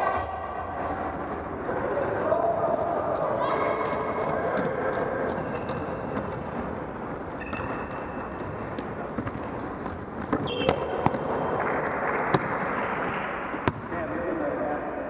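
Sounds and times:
reverberant hall noise: 0.0 - 15.0
sneaker squeaks: 3.8 - 6.4, 7.2 - 11.2.

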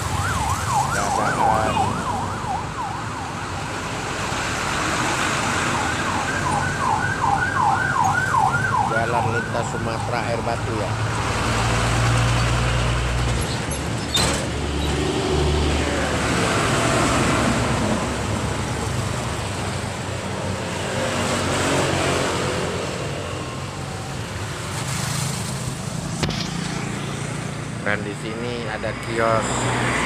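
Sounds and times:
vehicles passing: 0.0 - 30.0
heavy truck engine passing: 10.6 - 30.0.

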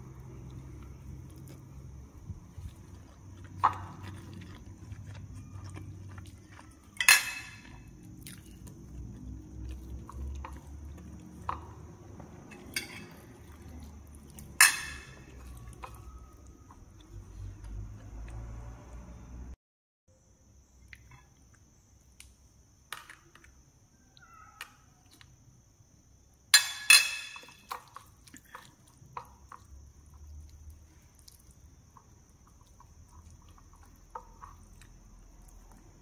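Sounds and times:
chewing and mouth sounds: 0.0 - 19.0, 27.4 - 36.0
clinks on glass dishes: 7.0 - 7.6, 12.6 - 13.2, 14.6 - 15.2, 26.6 - 27.6.

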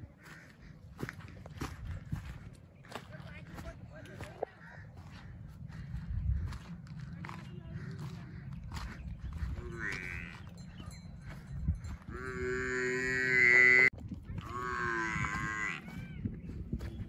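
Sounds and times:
cattle mooing: 9.5 - 10.6, 12.0 - 16.0.

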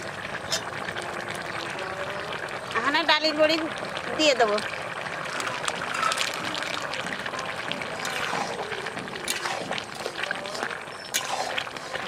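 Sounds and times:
curry simmering and bubbling: 0.0 - 12.0
spatula stirring vegetables: 5.2 - 12.0.

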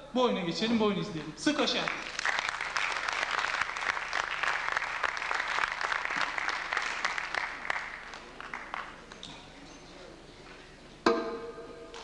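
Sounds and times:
audience applause: 1.7 - 9.2.

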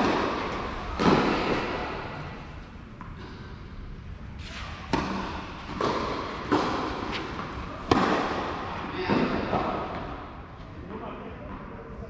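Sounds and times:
tennis ball hits with echo: 0.0 - 2.4, 4.6 - 10.3.

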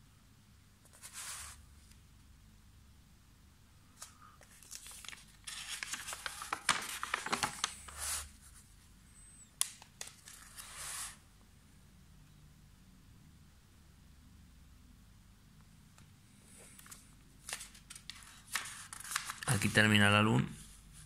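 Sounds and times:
paper pages rustling: 0.9 - 2.0, 4.0 - 8.7, 9.6 - 11.2, 16.6 - 20.0.

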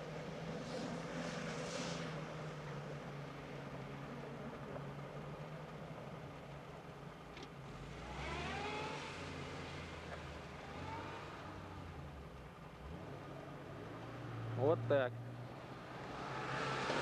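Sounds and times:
car engine revving under load: 7.6 - 17.0.

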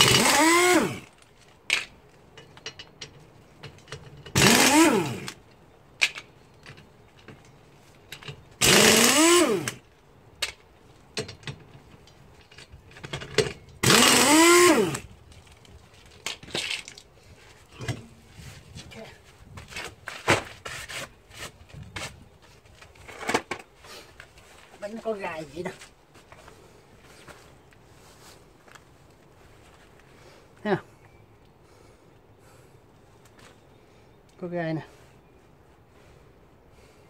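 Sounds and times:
power wrench spinning: 0.0 - 1.1, 4.3 - 5.4, 8.6 - 9.8, 13.8 - 15.1
clicks of nuts and tools: 1.6 - 5.4, 10.4 - 14.3.

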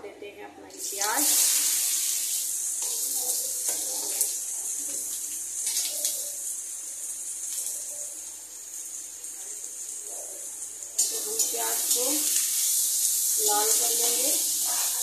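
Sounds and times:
onions sizzling in oil: 0.8 - 15.0.

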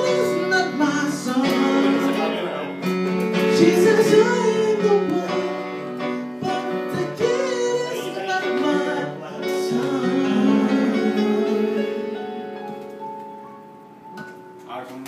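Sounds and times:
man singing into microphone: 0.0 - 2.8, 3.4 - 12.2
electronic keyboard chords: 0.0 - 15.0.

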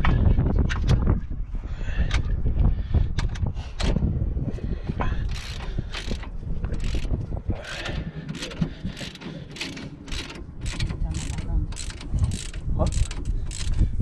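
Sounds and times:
ratchet wrench clicking: 5.3 - 13.8.

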